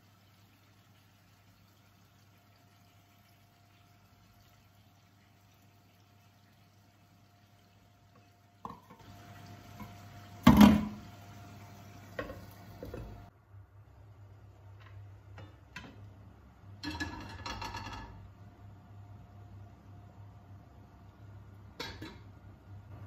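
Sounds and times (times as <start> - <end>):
cookware clattering: 16.8 - 18.2, 21.8 - 22.3.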